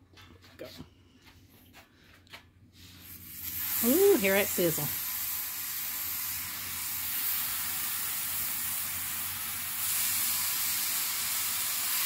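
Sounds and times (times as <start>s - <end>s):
burger patties sizzling on griddle: 2.8s - 12.0s.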